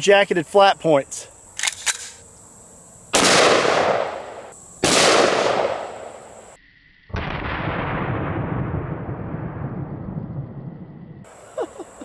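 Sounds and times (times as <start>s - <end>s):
pistol shots ringing out: 3.2s - 6.2s.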